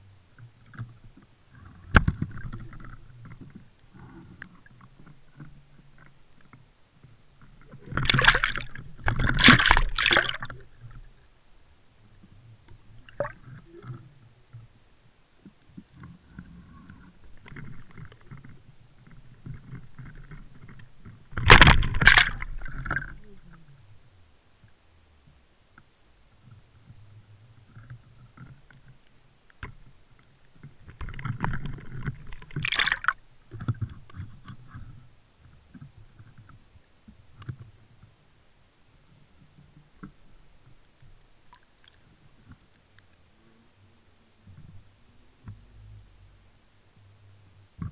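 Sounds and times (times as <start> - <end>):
water sloshing and gurgling: 0.4 - 11.3, 12.7 - 14.6, 15.5 - 23.7, 30.6 - 35.0.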